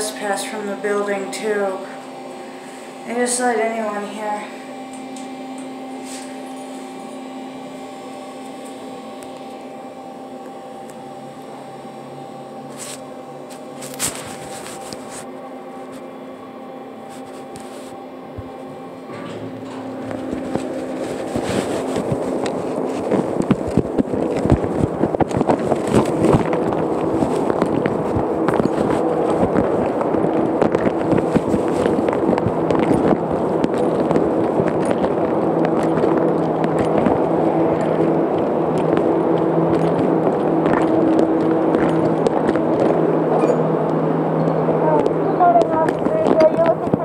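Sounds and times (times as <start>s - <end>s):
elevator hum: 0.0s - 47.0s
cloth rustling on microphone: 12.7s - 16.2s, 17.0s - 18.6s, 19.6s - 43.9s.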